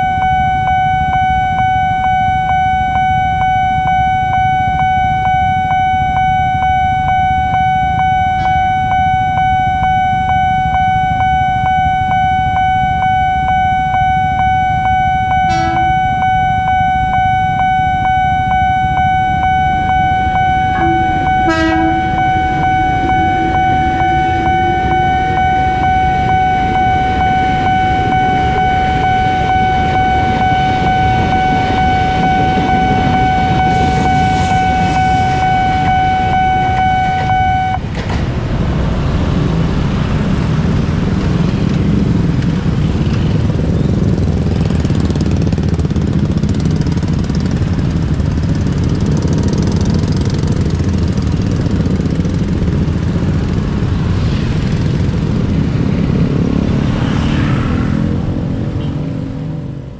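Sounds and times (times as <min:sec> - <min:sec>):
level crossing alarm ringing: 0:00.0 - 0:39.3
train rumble: 0:13.2 - 0:59.9
train horn toots: 0:15.3 - 0:16.3, 0:20.3 - 0:37.8.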